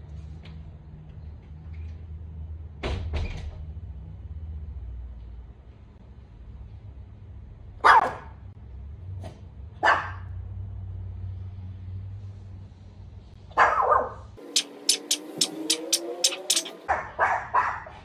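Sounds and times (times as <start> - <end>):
small dog barking: 7.8 - 8.3, 9.8 - 10.3, 13.5 - 18.0.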